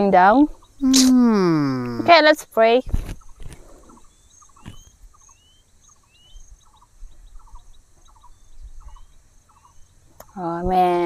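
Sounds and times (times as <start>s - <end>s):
insects chirring: 0.0s - 11.0s
bird rising chirp: 3.2s - 10.4s.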